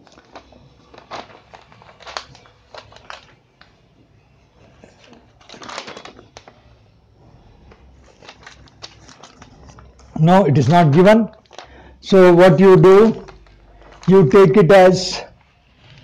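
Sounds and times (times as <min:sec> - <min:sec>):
paper sheets rustling: 0:00.0 - 0:03.8, 0:04.6 - 0:16.0.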